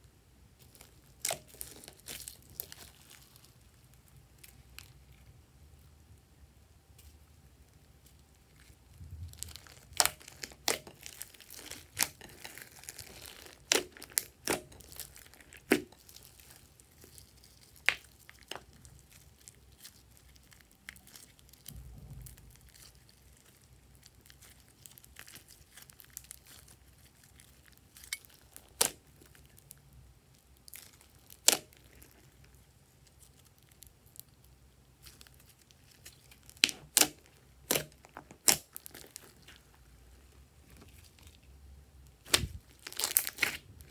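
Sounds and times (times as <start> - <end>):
slime crackling and squishing: 0.0 - 6.3, 6.9 - 43.9
slime popping: 9.3 - 29.4, 35.0 - 39.5.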